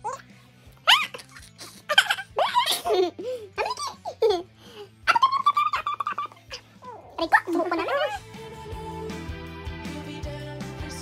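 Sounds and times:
toddler giggling and squealing: 0.8s - 4.5s.

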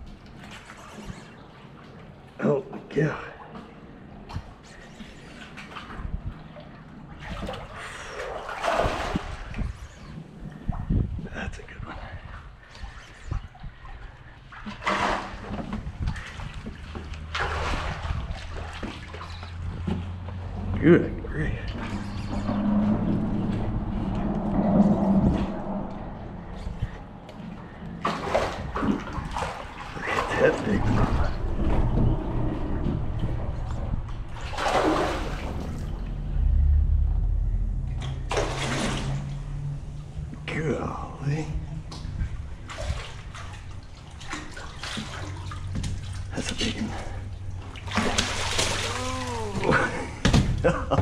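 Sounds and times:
water splashing: 0.0s - 11.0s, 11.7s - 51.0s
water streaming off net: 7.2s - 10.2s, 14.6s - 19.6s, 34.4s - 36.0s, 38.0s - 39.8s, 47.0s - 50.0s
low rumble: 15.3s - 44.2s.

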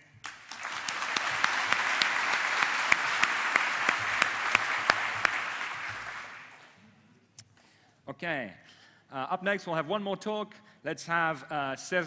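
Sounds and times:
audience applause in a hall: 0.0s - 6.8s.

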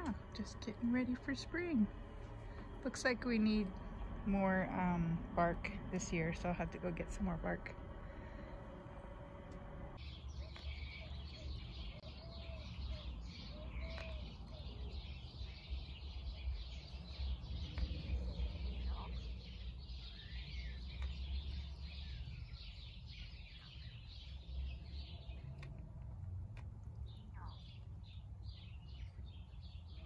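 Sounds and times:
low steady rumble: 0.0s - 30.0s
small birds chirping: 0.0s - 30.0s.

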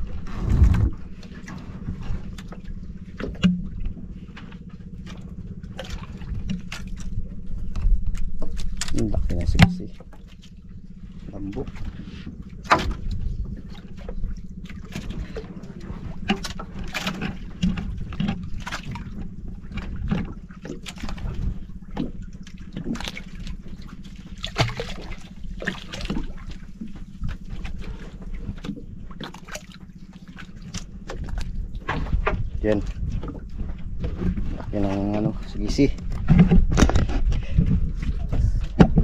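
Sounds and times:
steady low rumble: 0.0s - 39.0s
water splashing against boat: 0.0s - 39.0s
knocks on boat: 7.6s - 10.1s, 12.6s - 23.2s, 30.6s - 39.0s.

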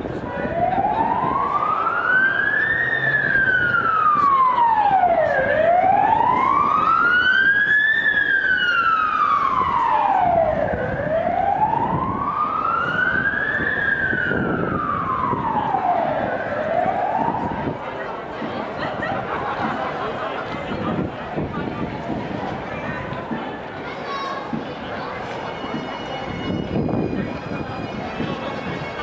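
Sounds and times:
police siren wailing: 0.0s - 18.2s.

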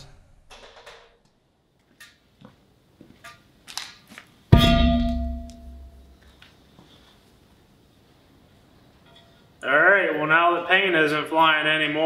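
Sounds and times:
metallic clang of wheel rim: 4.6s - 6.2s.

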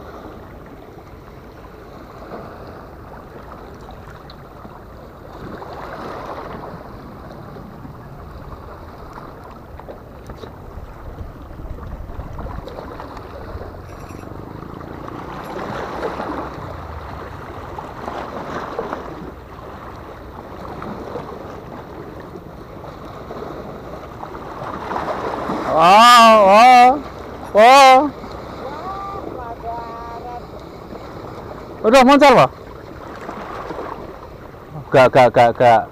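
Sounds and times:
wind rumbling on microphone: 0.0s - 26.3s
sea water lapping against rocks: 0.0s - 35.9s.

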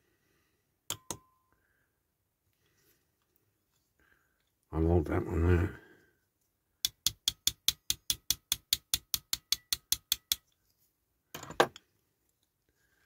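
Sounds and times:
small hammer tapping: 0.9s - 1.3s, 6.8s - 10.5s.

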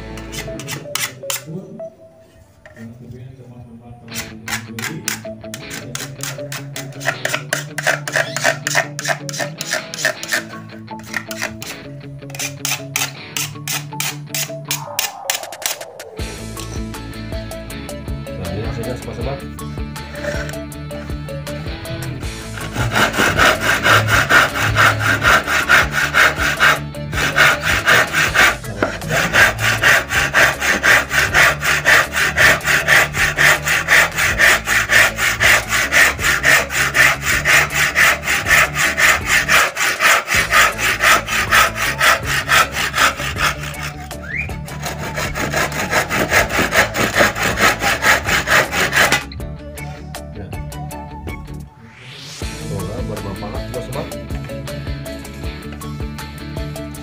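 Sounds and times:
hand saw cutting wood: 0.1s - 1.5s, 4.1s - 16.0s, 20.2s - 20.6s, 22.4s - 49.4s.

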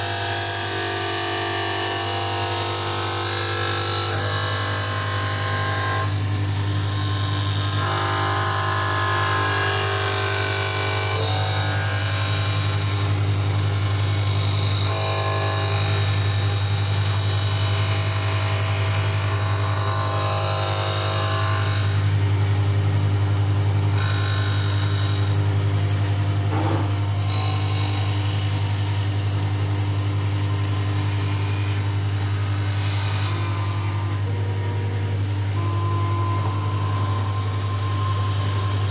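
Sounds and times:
lens edger grinding whine: 0.0s - 38.9s
motor hum: 0.0s - 38.9s.

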